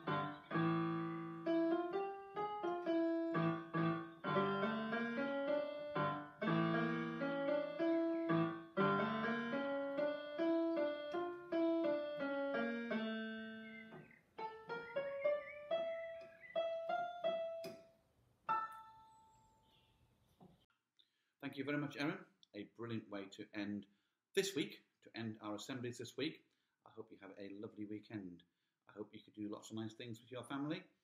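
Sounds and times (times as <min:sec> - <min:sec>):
electronic keyboard piano melody: 0:00.0 - 0:17.9, 0:18.5 - 0:19.6.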